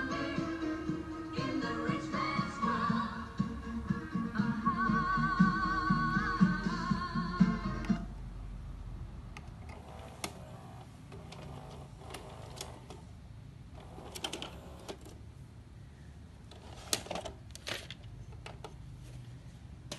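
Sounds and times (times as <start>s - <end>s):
mechanical clicks and clunks: 9.4s - 13.1s, 13.8s - 15.2s.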